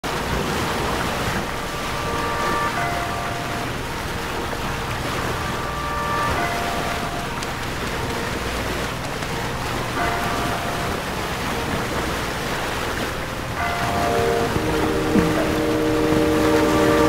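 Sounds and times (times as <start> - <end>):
sea water rushing: 0.0 - 17.0
soft held musical chord: 1.4 - 17.0.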